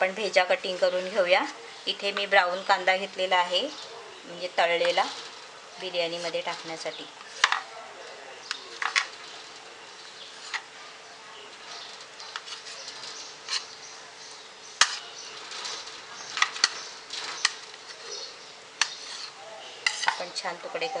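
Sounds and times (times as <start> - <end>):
knife scraping lightly: 11.7 - 13.8, 14.8 - 18.2, 18.8 - 20.3.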